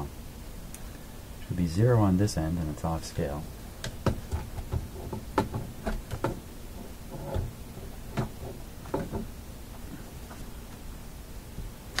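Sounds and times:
light clicks and knocks: 0:03.8 - 0:10.8.

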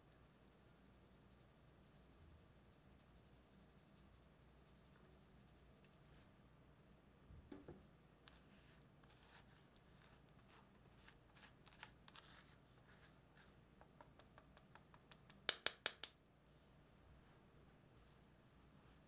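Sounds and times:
quick sharp taps: 0:13.8 - 0:16.2.

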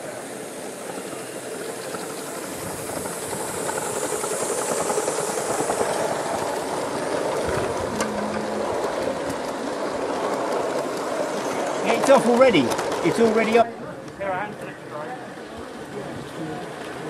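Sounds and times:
steam hiss: 0:00.0 - 0:13.5
model train wheels clattering: 0:00.0 - 0:17.0.

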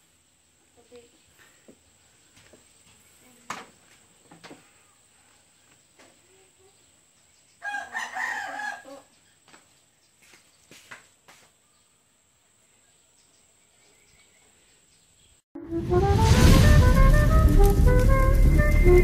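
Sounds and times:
rooster crowing: 0:07.6 - 0:09.1.

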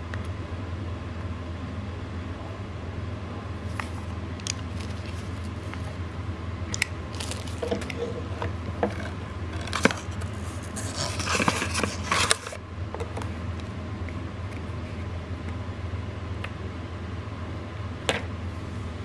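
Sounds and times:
low hum: 0:00.0 - 0:19.0
cardboard and paper rustling: 0:03.7 - 0:06.0, 0:07.1 - 0:12.6.

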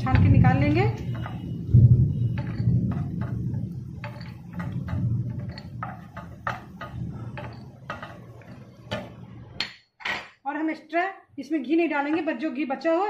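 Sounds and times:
low steady hum: 0:00.0 - 0:09.7
spatula scraping nuts in a pan: 0:02.3 - 0:09.2.

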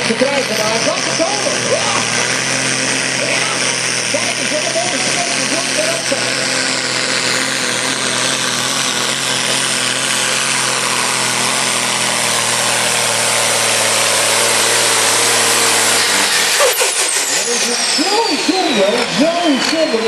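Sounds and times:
high engine whine: 0:00.0 - 0:20.0
tractor diesel engine under load: 0:00.0 - 0:20.0.

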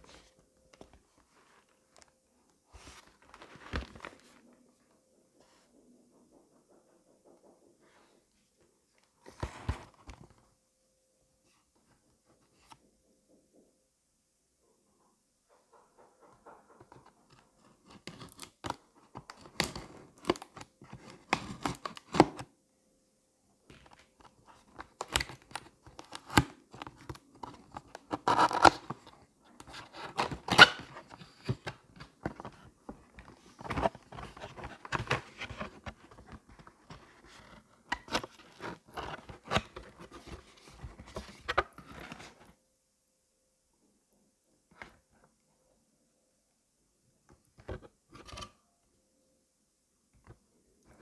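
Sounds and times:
cardboard scraping and rustling: 0:23.7 - 0:42.5
plastic packing rustling: 0:23.7 - 0:42.5.

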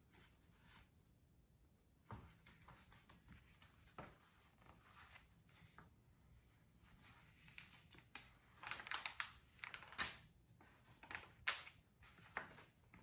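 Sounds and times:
paper pages rustling: 0:02.5 - 0:05.9, 0:06.9 - 0:13.0.

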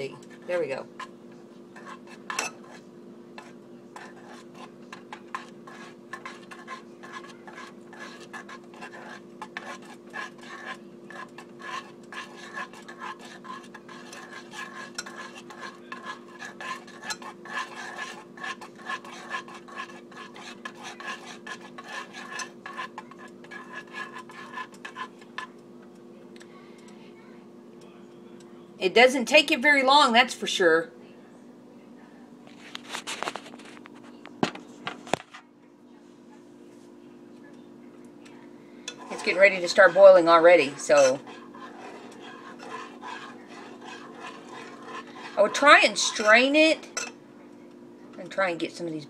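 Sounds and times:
steady low hum: 0:00.0 - 0:30.2, 0:30.8 - 0:49.0
metal utensil scraping a saucepan: 0:01.8 - 0:25.5, 0:38.9 - 0:47.2.

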